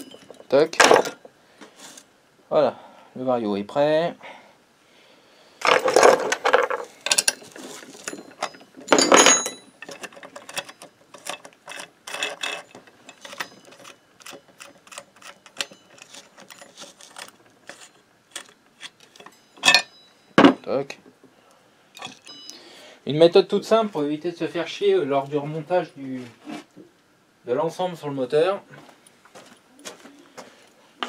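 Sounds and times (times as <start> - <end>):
metal clatter: 0.0 - 1.2, 5.6 - 20.6
metallic clicks and rattles: 5.6 - 19.9.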